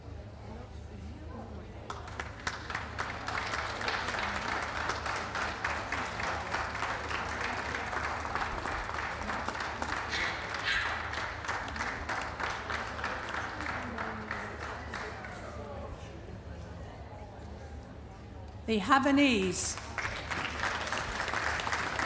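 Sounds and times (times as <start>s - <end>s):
crowd applauding: 1.9s - 15.7s, 18.9s - 22.0s
voices: 18.7s - 19.8s.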